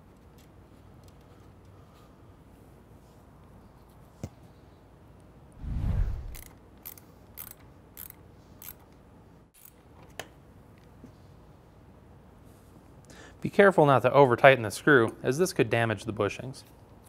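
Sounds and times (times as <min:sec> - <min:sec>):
low whoosh: 0:05.6 - 0:06.5
wrench ratcheting clicks: 0:06.3 - 0:08.8.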